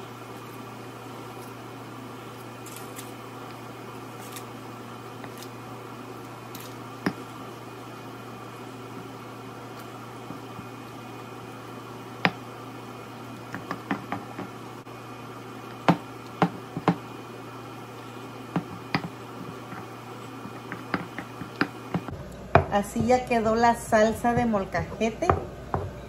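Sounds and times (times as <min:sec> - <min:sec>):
steady low hum: 0:00.0 - 0:26.0
stone pestle knocking and grinding: 0:20.5 - 0:22.7.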